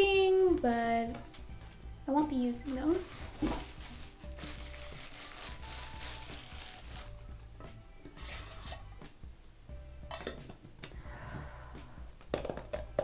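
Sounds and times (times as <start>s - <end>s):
plastic bag rustling: 1.6s - 7.4s
metal tins clinking: 10.1s - 10.6s.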